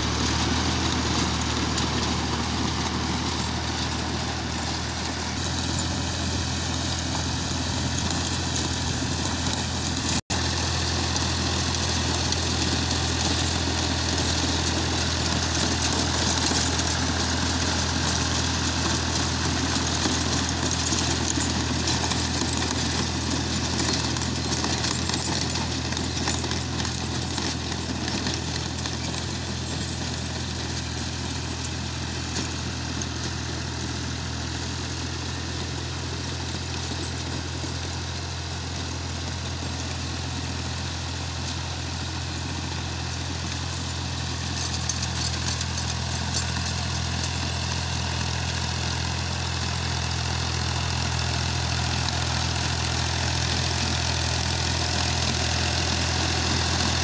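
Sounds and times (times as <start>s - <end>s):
rotavator blades churning soil: 0.0s - 57.0s
tractor diesel engine under load: 0.0s - 57.0s.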